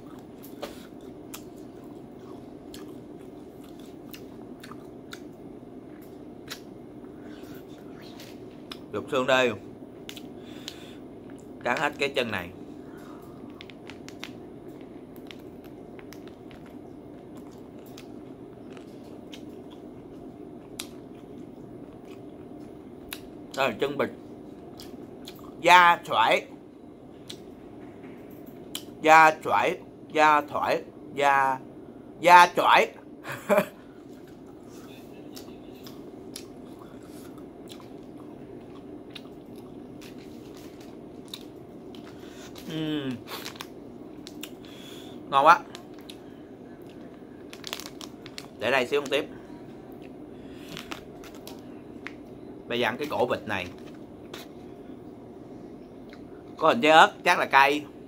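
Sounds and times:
crunchy chewing: 0.0 - 8.9, 12.9 - 23.3, 34.0 - 44.8, 45.6 - 48.6, 49.9 - 52.2
steady low hum: 0.0 - 58.0.

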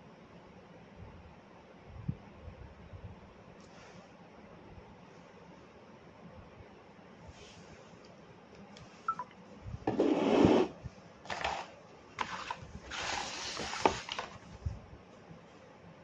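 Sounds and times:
cardboard box rustling and scraping: 9.9 - 14.4.

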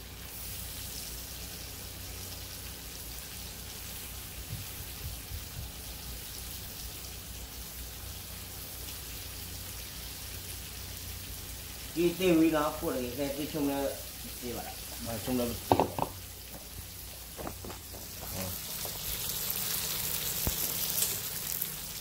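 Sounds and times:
fish sizzling in a wok: 0.0 - 22.0
soft knocks: 15.6 - 16.7, 17.4 - 18.4.

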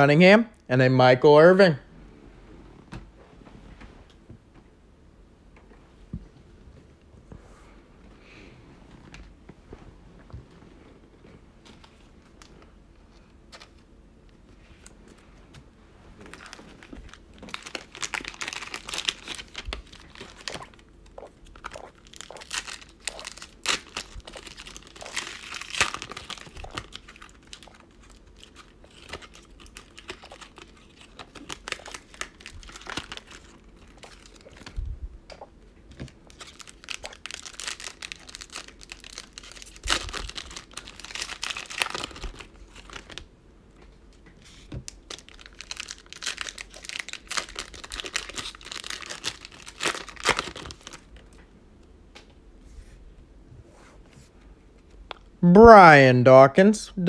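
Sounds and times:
plastic wrappers crinkling: 16.2 - 34.8, 36.0 - 43.2, 44.9 - 51.3.

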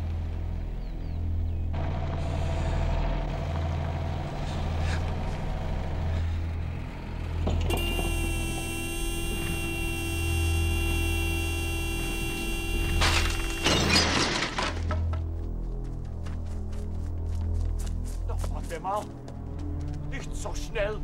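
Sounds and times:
car engine rumbling: 1.3 - 13.9
car horn blaring: 7.7 - 14.1.

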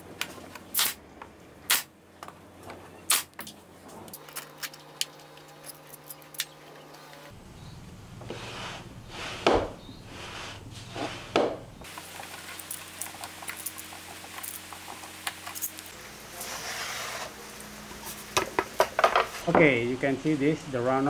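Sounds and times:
board scraping: 8.2 - 11.6, 16.4 - 17.4.

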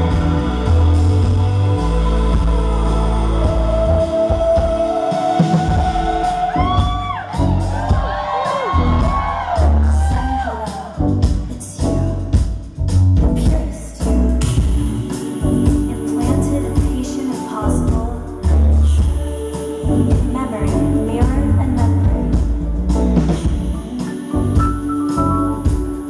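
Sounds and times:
heavy bass and drums: 0.0 - 26.0
synthesizers: 0.0 - 26.0
woman singing: 9.4 - 12.4, 13.2 - 22.6, 23.2 - 26.0.

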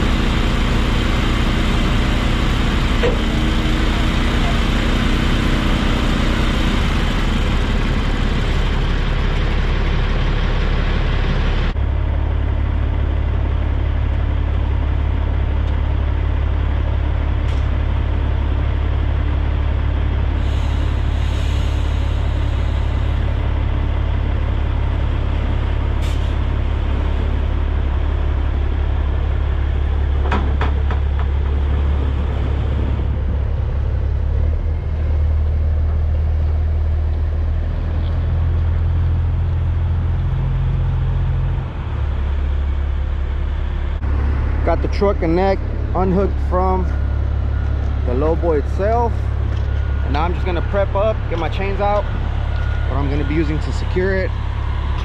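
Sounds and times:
truck diesel engine rumbling: 0.0 - 55.0
air brake hiss: 20.4 - 23.2, 26.0 - 26.4.

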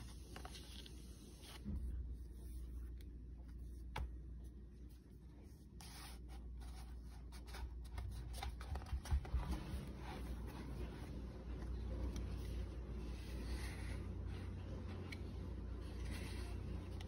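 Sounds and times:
paper pages rustling: 0.0 - 4.2, 5.7 - 17.0
steady low hum: 0.0 - 17.0
soft clicks of pages: 11.5 - 12.8, 14.7 - 17.0.

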